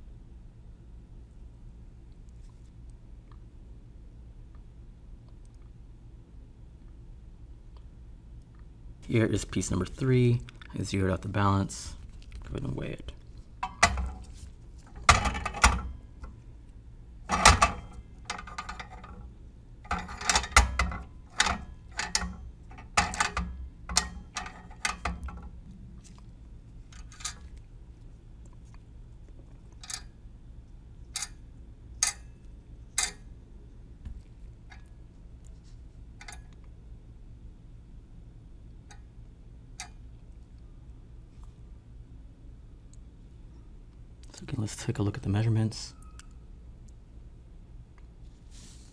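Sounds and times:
balance clicks and knocks: 13.6s - 16.4s, 17.3s - 19.3s, 19.9s - 25.6s.

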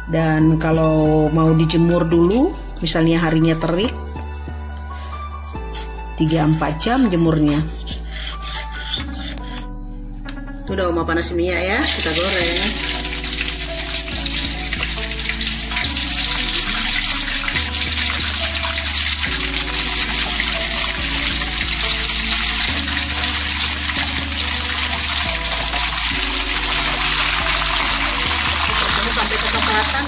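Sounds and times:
background music with bass: 0.0s - 30.0s
meat sizzling in hot oil: 11.8s - 30.0s.

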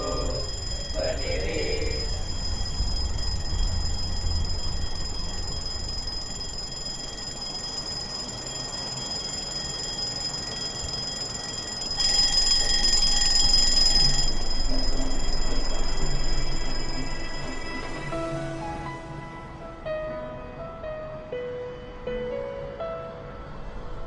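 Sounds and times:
smartphone alarm ringing: 0.0s - 17.9s.

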